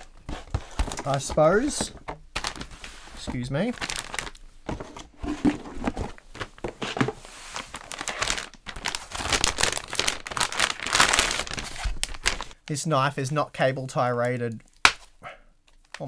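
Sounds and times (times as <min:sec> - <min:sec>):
plastic packaging crinkling: 0:02.3 - 0:12.6.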